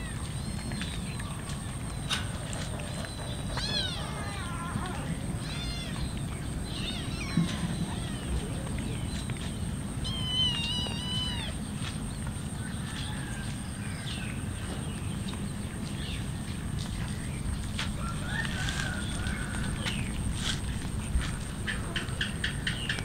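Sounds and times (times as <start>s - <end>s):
low background noise: 0.0s - 23.0s
cats meowing: 3.1s - 9.1s, 10.0s - 11.7s.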